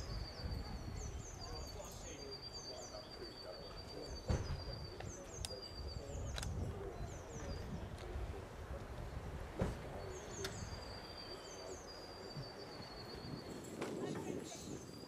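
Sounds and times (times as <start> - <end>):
small birds singing: 0.0 - 15.0
thump: 4.3 - 4.7, 9.6 - 10.0.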